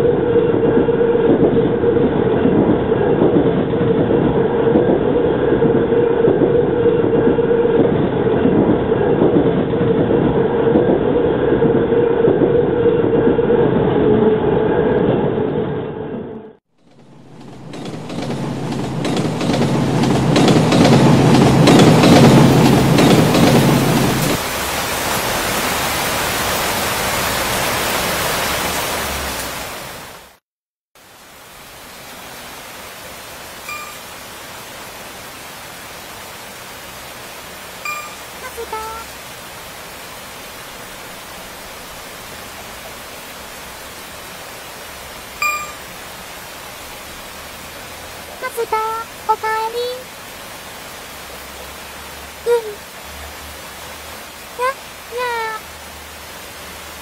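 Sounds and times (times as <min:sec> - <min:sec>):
thunder rumble: 0:00.0 - 0:27.6
heavy rain hissing: 0:16.9 - 0:30.4, 0:31.0 - 0:57.0.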